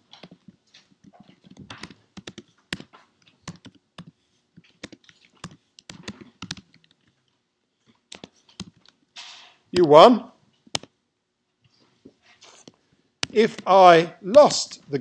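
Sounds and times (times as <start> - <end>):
computer keyboard keystroke clicks: 4.7 - 7.0.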